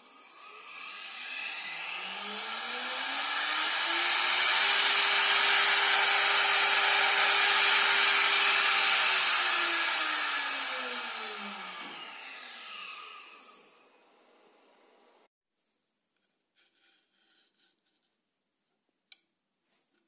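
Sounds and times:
spindle motor whine: 0:00.0 - 0:14.2.

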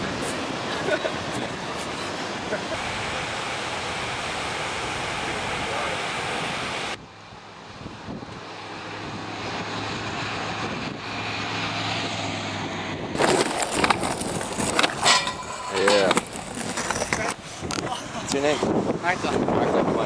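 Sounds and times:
ocean surf: 0:00.0 - 0:07.0
motor vehicle drone: 0:00.0 - 0:20.0
skateboard wheels on concrete: 0:13.1 - 0:18.7.

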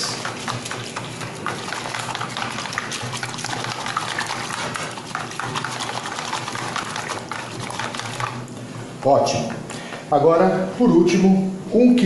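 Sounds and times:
whisk beating liquid in bowl: 0:00.0 - 0:09.0.

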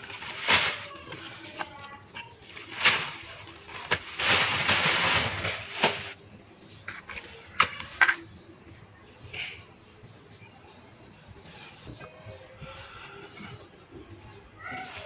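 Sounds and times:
plastic sheet crinkling: 0:00.0 - 0:06.2.

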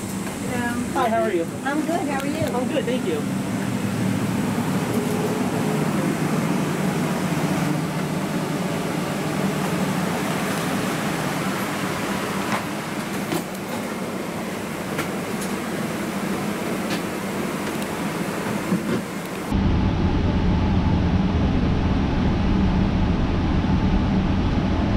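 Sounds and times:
cabin air conditioning hum: 0:00.0 - 0:24.9.

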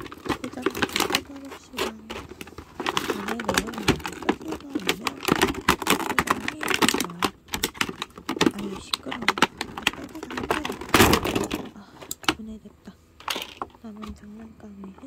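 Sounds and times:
plastic film crackling: 0:00.0 - 0:11.7.

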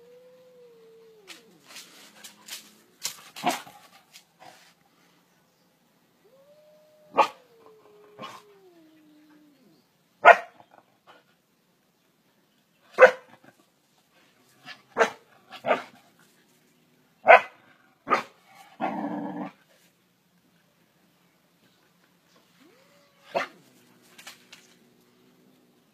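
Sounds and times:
dog barking: 0:07.1 - 0:07.4, 0:10.2 - 0:10.6, 0:13.0 - 0:13.3, 0:15.0 - 0:15.9, 0:17.2 - 0:18.4.

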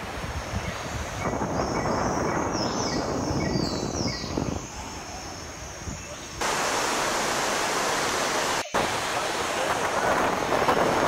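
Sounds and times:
wind buffeting microphone: 0:00.0 - 0:06.5, 0:08.8 - 0:11.0
rushing river rapids: 0:06.4 - 0:11.0.

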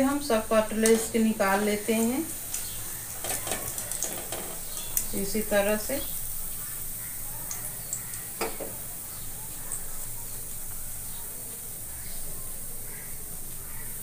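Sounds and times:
frying oil sizzling: 0:00.0 - 0:14.0.

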